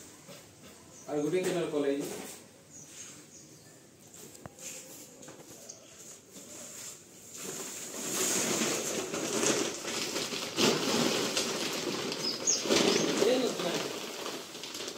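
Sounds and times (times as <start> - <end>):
plastic sack crinkling: 6.6 - 14.9.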